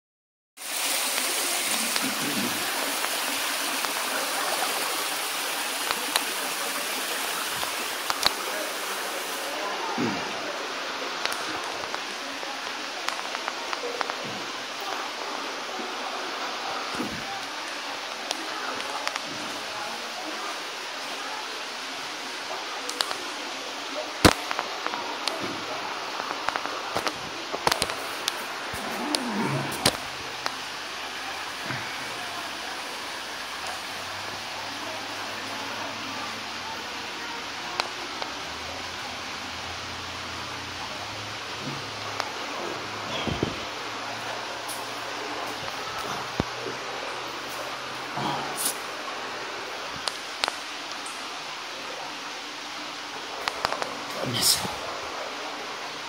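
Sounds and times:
waterfall pouring over rock: 0.6s - 56.0s.

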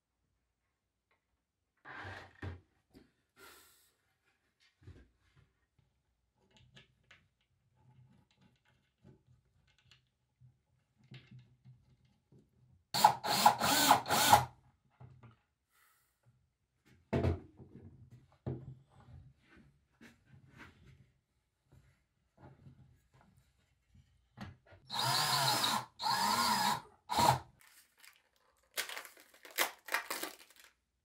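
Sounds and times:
cordless drill driving bolts: 13.0s - 14.5s, 24.9s - 27.5s.

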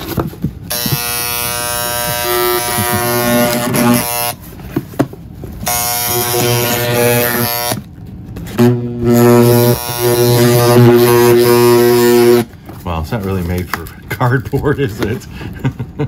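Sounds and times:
electric cutter buzzing into cardboard: 0.0s - 4.4s, 5.6s - 7.9s, 8.5s - 12.5s.

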